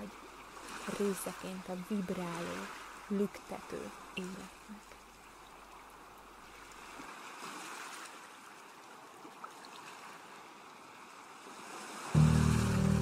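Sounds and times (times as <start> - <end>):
sea waves rushing: 11.8 - 13.0.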